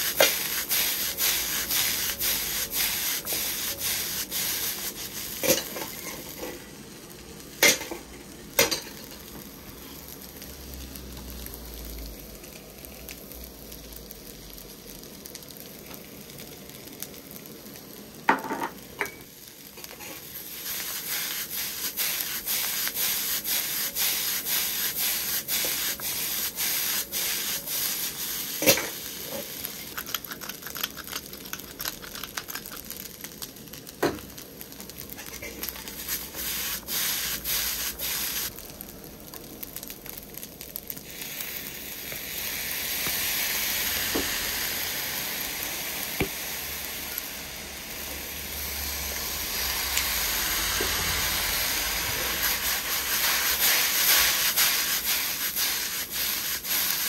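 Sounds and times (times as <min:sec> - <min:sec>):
pepper mill grinding: 0:00.0 - 0:06.6, 0:20.0 - 0:33.0
ladle scraping wok: 0:00.0 - 0:06.7, 0:19.8 - 0:30.1, 0:48.6 - 0:57.0
rice sizzling in a wok: 0:00.0 - 0:57.0.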